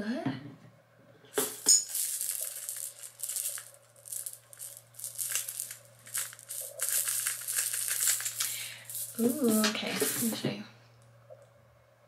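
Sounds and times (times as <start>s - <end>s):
plastic beads rattling in toy: 1.3s - 10.4s.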